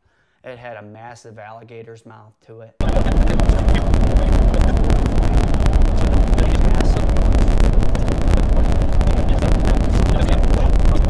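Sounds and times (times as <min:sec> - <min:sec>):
wind buffeting microphone: 0:02.8 - 0:11.0.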